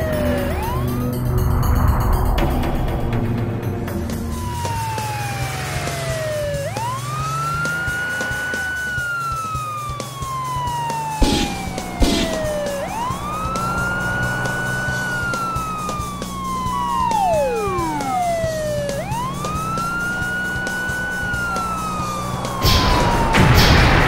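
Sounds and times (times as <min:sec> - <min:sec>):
cartoon police siren wailing: 0:00.0 - 0:01.2, 0:04.3 - 0:24.0
falling whistle-like glide: 0:11.2 - 0:24.0.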